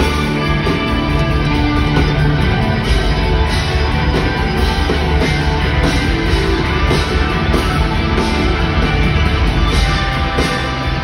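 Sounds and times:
drum kit: 0.0s - 11.0s
electric guitar: 0.0s - 11.0s
keyboards: 0.0s - 11.0s.

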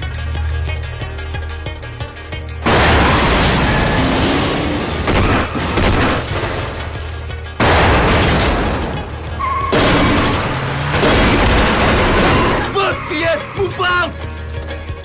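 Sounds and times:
film music score: 0.0s - 15.0s
heavy gunfire: 2.6s - 6.9s, 7.6s - 9.1s, 9.7s - 12.7s
explosions: 2.6s - 7.0s, 7.6s - 9.1s
debris rattling: 2.6s - 14.7s.

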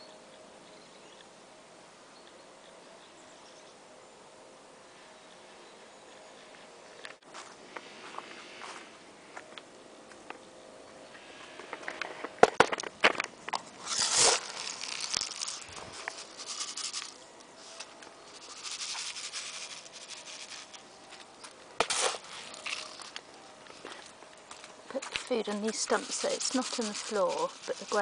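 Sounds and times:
close rustling and pattering: 13.5s - 28.0s.

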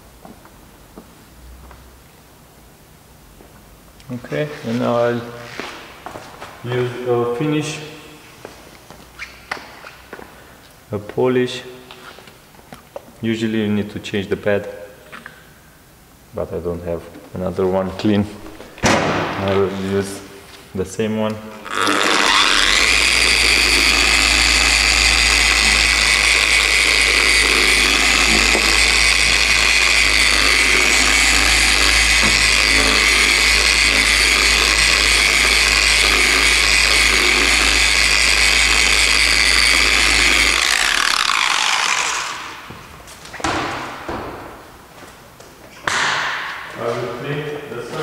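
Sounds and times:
orbital car polisher whining: 18.4s - 20.3s, 21.6s - 42.7s.

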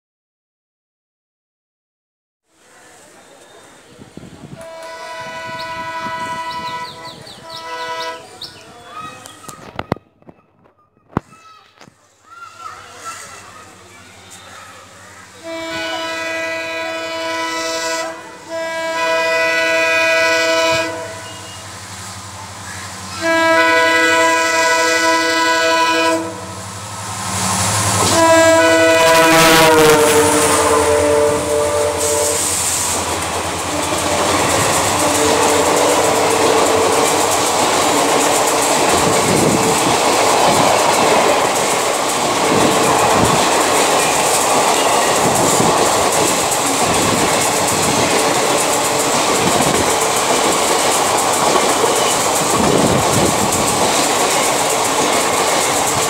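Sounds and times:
locomotive air horn blasts: 4.6s - 8.3s, 15.4s - 21.7s, 23.2s - 26.7s, 28.0s - 32.8s, 33.6s - 38.4s
train wheels clattering: 26.7s - 56.0s.

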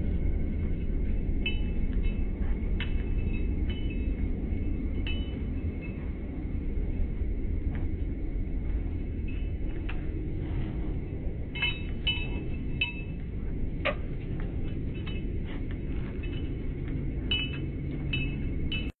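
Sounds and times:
steady low rumble: 0.0s - 19.0s
light metallic clinks and jingles: 0.6s - 18.9s.

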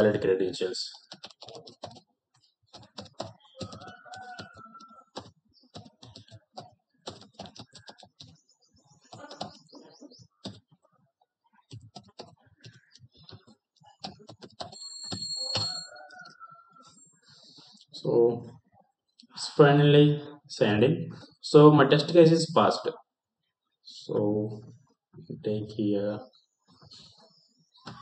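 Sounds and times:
keyboard typing: 0.0s - 10.9s, 11.6s - 16.6s.

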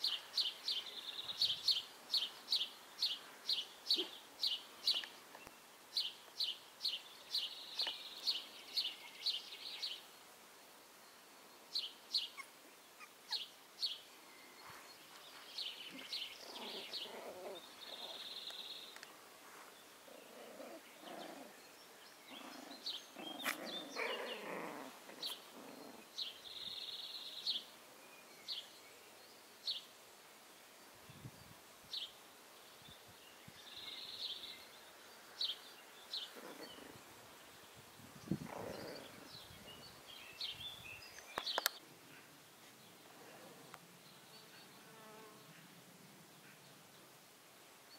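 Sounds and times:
small birds chirping: 0.0s - 10.4s, 11.0s - 29.9s, 30.8s - 47.9s
puppies growling and squeaking: 16.4s - 18.2s, 20.2s - 21.6s, 22.3s - 26.1s, 36.3s - 37.0s, 38.4s - 39.3s.

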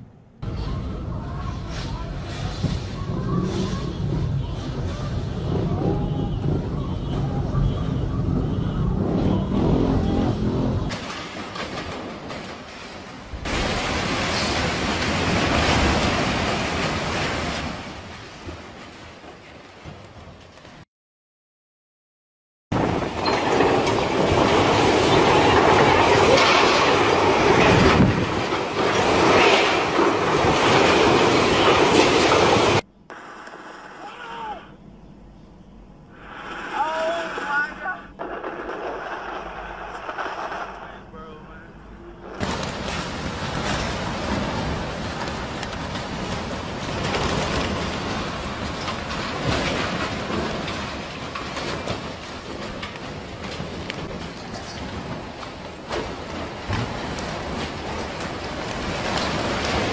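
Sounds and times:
heavy rain: 0.4s - 20.8s, 22.7s - 32.9s, 36.2s - 59.9s
strong storm wind: 0.7s - 11.0s, 22.7s - 32.8s
gusting wind on microphone: 22.7s - 32.8s.

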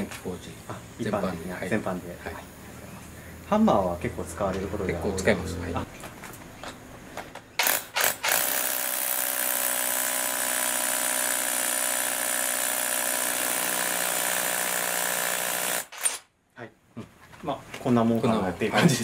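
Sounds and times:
hammer drill boring into concrete: 7.6s - 16.2s.

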